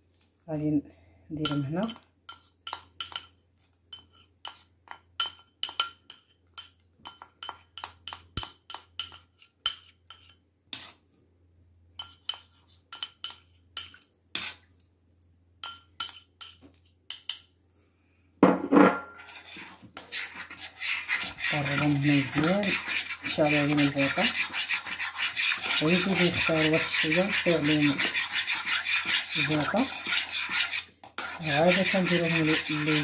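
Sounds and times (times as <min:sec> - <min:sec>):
whisk scraping a pan: 0:03.9 - 0:11.0, 0:12.0 - 0:13.5, 0:14.3 - 0:14.7, 0:19.1 - 0:33.0.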